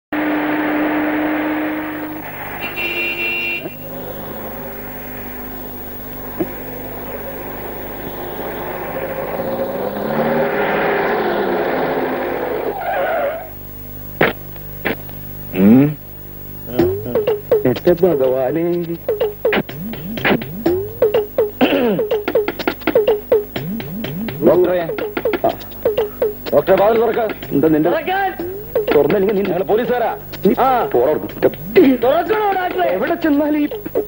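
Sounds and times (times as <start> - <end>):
car engine approaching: 0.1 - 2.6, 3.8 - 13.4
loud rising sound: 6.6 - 12.6.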